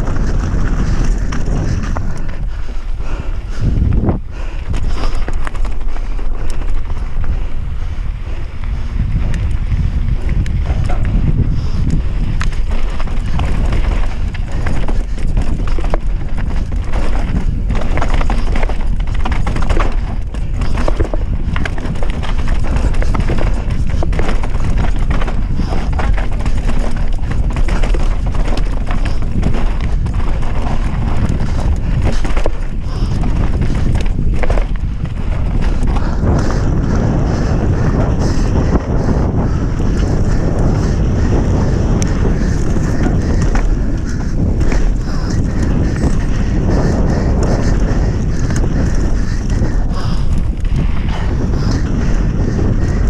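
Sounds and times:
bike knocking and rattling: 0.0s - 53.0s
wind rumble on microphone: 0.0s - 53.0s
tyres rolling over dirt and stones: 10.8s - 37.6s.

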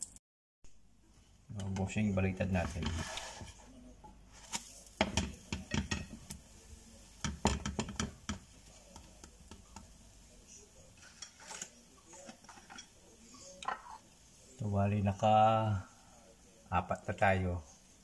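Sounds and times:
spatula scraping frying pan: 2.3s - 3.7s, 10.9s - 14.2s
spatula tapping pan: 5.0s - 6.4s, 7.2s - 10.0s.

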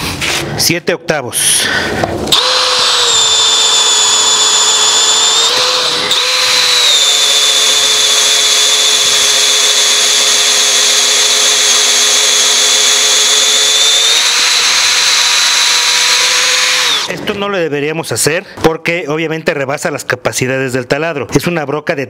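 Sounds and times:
cordless drill boring wood: 2.3s - 17.2s.

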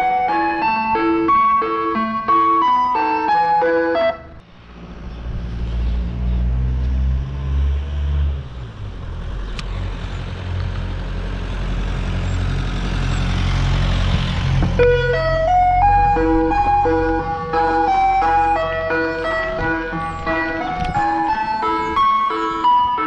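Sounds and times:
ice cream van chime tune: 0.0s - 4.3s, 14.8s - 23.0s
road noise: 0.0s - 23.0s
vehicle engine running: 4.3s - 22.8s.

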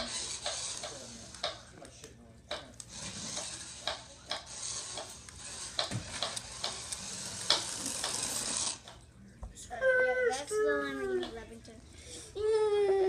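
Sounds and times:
toy car motor hissing: 0.0s - 1.6s, 2.8s - 9.0s.

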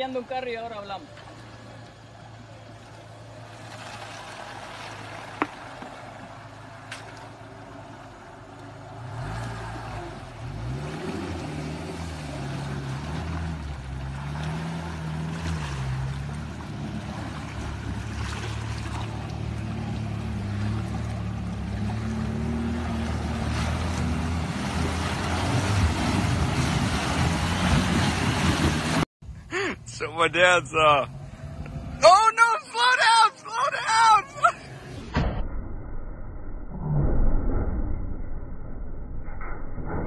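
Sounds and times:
water rushing and splashing: 0.0s - 29.1s, 30.1s - 35.0s
car engine revving: 7.5s - 29.1s.

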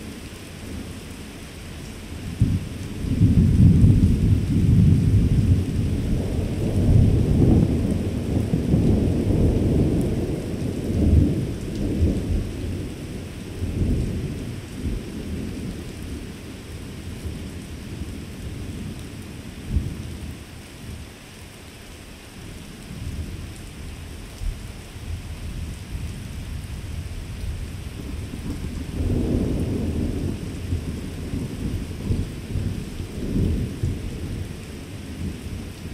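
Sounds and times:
rain hissing: 0.0s - 35.9s
thunder rumbling: 2.2s - 16.4s, 25.6s - 35.9s.

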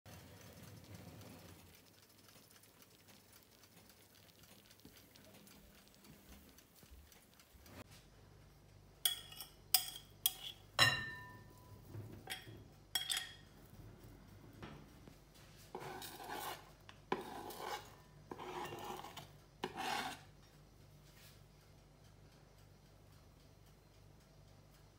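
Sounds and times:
ceramic bowl clinking on glass bowl: 9.1s - 11.7s, 12.3s - 13.4s
scraping off a cutting board: 15.7s - 20.2s.

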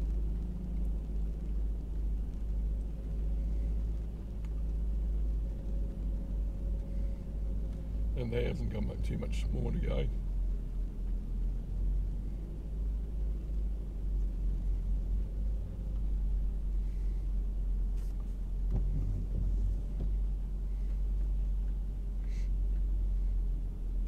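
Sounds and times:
faint clicks: 0.0s - 7.9s
low car engine rumble: 0.0s - 24.0s.

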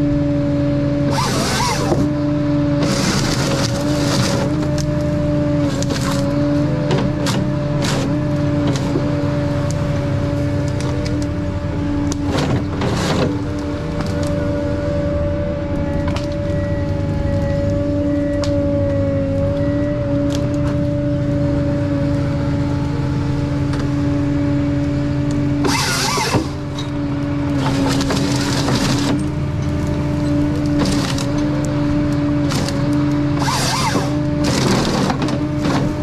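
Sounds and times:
diesel engine drone: 0.0s - 36.0s
hydraulic whine: 0.0s - 36.0s
harvester head working stems: 1.0s - 2.2s, 2.8s - 11.4s, 12.0s - 14.8s, 25.2s - 36.0s.

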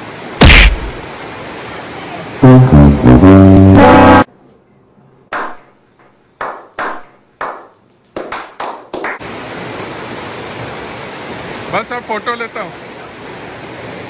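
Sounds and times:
rushing water: 0.0s - 4.3s, 8.8s - 14.0s
men clapping: 6.4s - 9.2s.

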